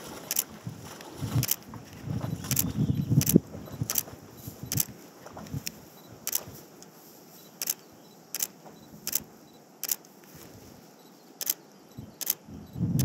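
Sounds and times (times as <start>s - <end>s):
faint steady hiss: 0.0s - 13.0s
sharp clicks: 0.3s - 0.5s, 2.5s - 4.1s, 4.7s - 4.9s, 5.6s - 6.9s, 7.6s - 10.2s, 11.4s - 13.0s.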